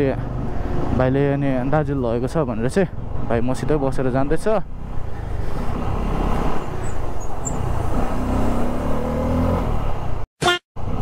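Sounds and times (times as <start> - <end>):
motorcycle engine: 4.7 - 10.0.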